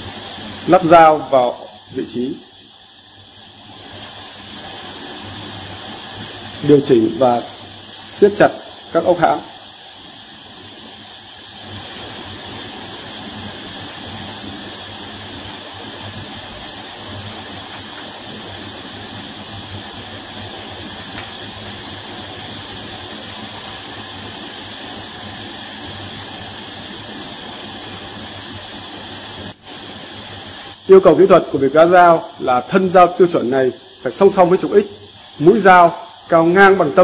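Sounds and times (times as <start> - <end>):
steady hiss: 0.0 - 37.0.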